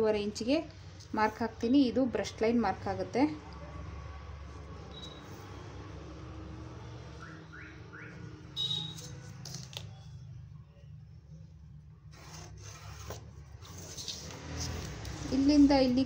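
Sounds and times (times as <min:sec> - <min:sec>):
chalk scraping along ruler: 0:12.1 - 0:15.5.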